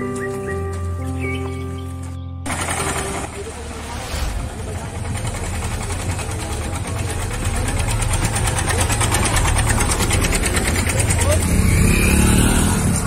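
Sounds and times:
tractor diesel engine knocking: 2.5 - 3.7, 4.7 - 11.9.

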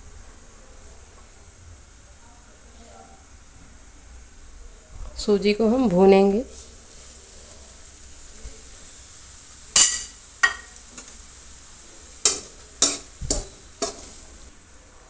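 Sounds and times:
faint steady hiss: 0.0 - 15.0
metal spoon scraping metal pan: 12.3 - 14.2.

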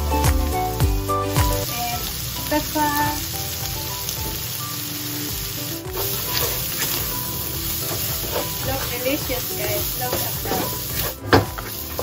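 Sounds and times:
chicken sizzling in a frying pan: 1.4 - 12.0
wooden spatula scraping pan: 6.0 - 12.0.

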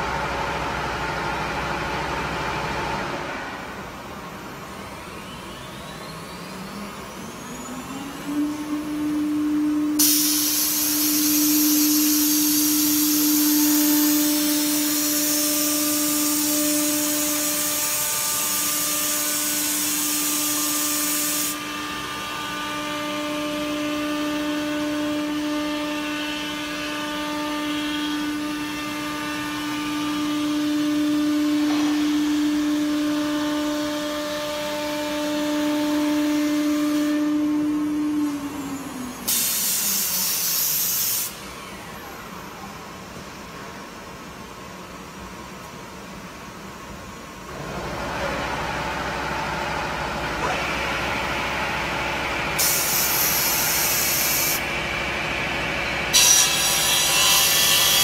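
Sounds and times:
loud hiss: 10.0 - 15.4, 52.6 - 54.6
saw blade whining: 56.0 - 58.0.

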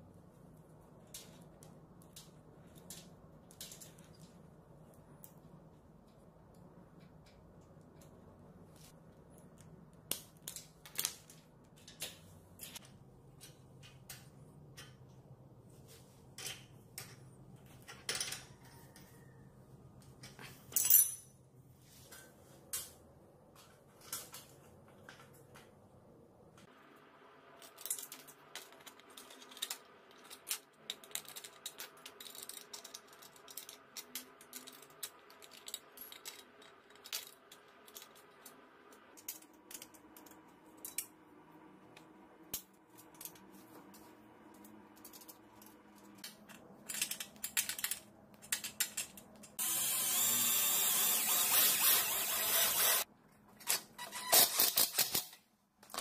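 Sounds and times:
metal parts clinking: 20.7 - 21.3, 46.5 - 49.6.

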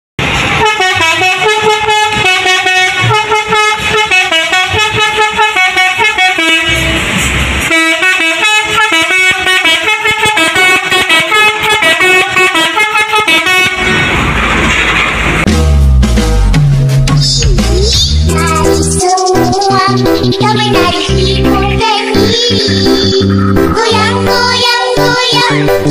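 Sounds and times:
multi-tone air horn melody: 0.5 - 14.0
low rumble: 13.8 - 24.7.

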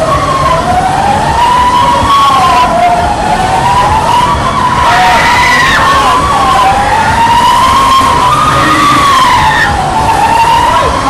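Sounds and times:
riders screaming: 4.7 - 11.0.

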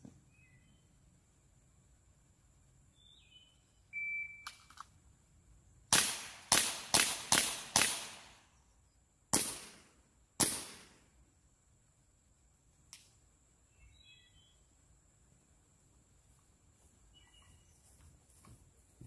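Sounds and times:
air pistol shots: 5.9 - 8.4, 9.3 - 11.0.

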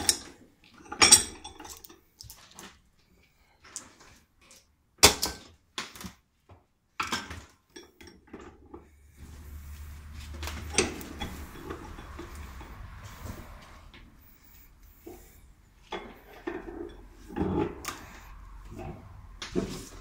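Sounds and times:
low steady hum: 8.8 - 20.0
metal tools clanking: 10.3 - 20.0.

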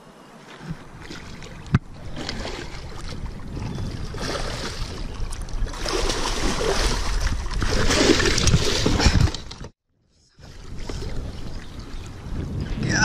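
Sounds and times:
fish thrashing water splashing: 0.6 - 9.4.

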